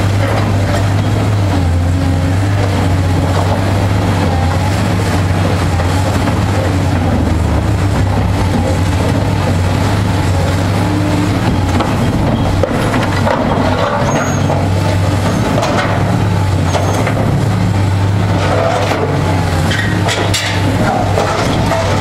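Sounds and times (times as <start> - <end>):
diesel engine running: 0.0 - 22.0
debris knocks and scrapes: 11.2 - 17.3, 18.3 - 22.0.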